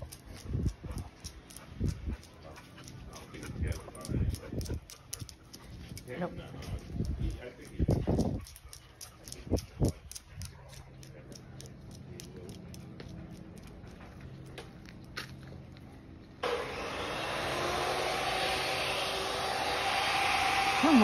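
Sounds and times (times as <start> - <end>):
chain leash clinking: 0.0 - 14.5.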